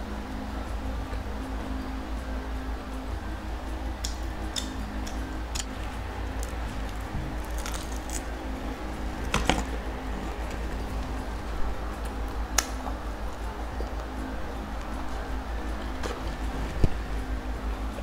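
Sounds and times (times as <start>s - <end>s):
steady low hum: 0.0s - 18.0s
chewing food: 5.1s - 8.3s
sharp eating crunches: 6.4s - 8.3s.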